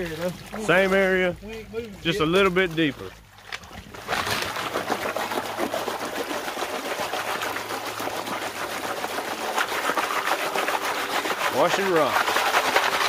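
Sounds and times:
water sloshing and splashing: 0.0s - 13.0s
stones rattling in a pan: 4.1s - 13.0s.

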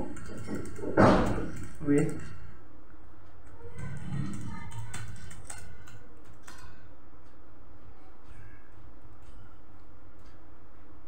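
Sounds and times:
typing on keyboard: 0.0s - 2.4s, 3.4s - 6.8s.

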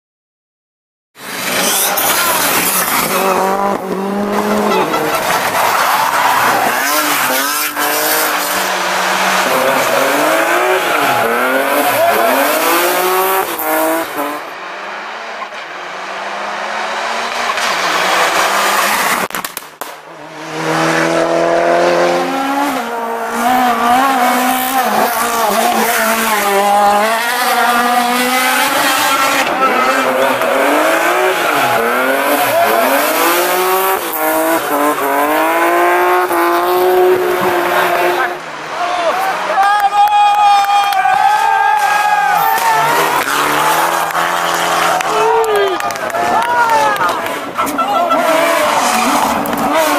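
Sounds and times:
rally car engines revving: 1.2s - 39.7s, 40.4s - 49.9s
tyre squeal: 1.4s - 3.4s.

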